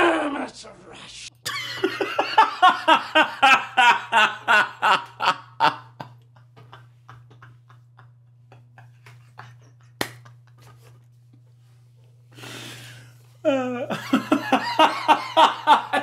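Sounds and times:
low electrical hum: 0:00.0 - 0:16.0
man laughing: 0:01.5 - 0:11.0, 0:13.4 - 0:16.0.

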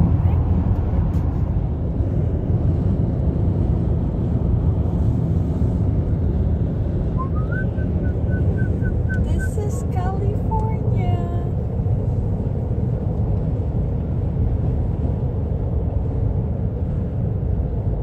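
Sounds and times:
car road and engine rumble: 0:00.0 - 0:18.0
short rising tone: 0:07.2 - 0:09.2.

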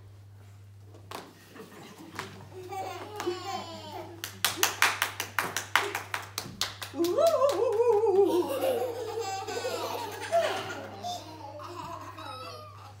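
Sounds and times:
children laughing: 0:01.6 - 0:04.3, 0:07.0 - 0:13.0
hands clapping: 0:03.0 - 0:03.5, 0:04.2 - 0:08.6.

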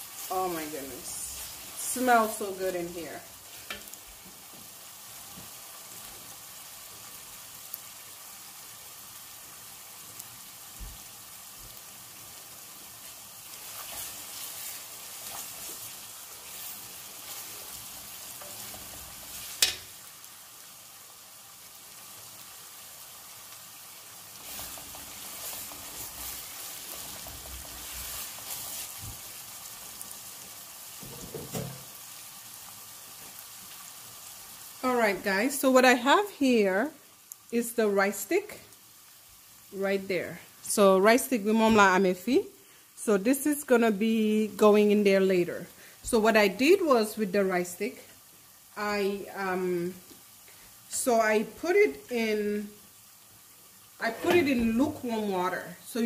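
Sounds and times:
sauce sizzling in a metal pot: 0:00.0 - 0:56.0
wooden spoon scraping a pot: 0:13.5 - 0:19.8, 0:54.0 - 0:55.1.

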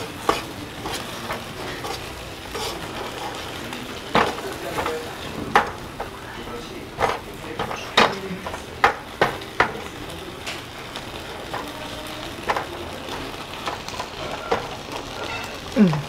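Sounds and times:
metal ladle scraping a pan: 0:00.0 - 0:04.4
rice sizzling in a pan: 0:00.0 - 0:16.0.

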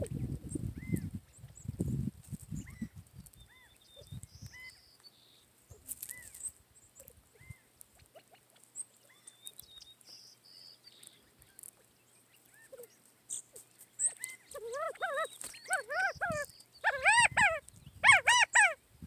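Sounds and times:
birds chirping: 0:00.0 - 0:18.8.

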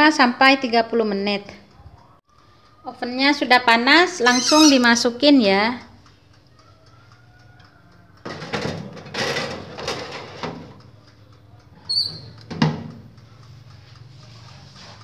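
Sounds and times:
short squeak: 0:04.2 - 0:04.9, 0:11.8 - 0:12.4
toaster oven humming: 0:08.0 - 0:15.0
metal tray scraping and rattling: 0:08.3 - 0:10.8.

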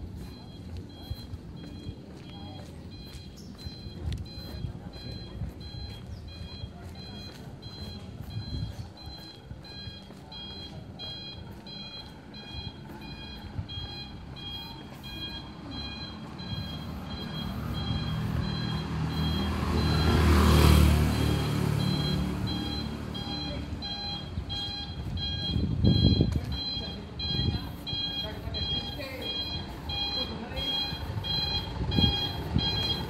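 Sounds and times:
high two-tone electronic beep: 0:00.1 - 0:33.0
vehicle engine passing: 0:00.1 - 0:33.0.

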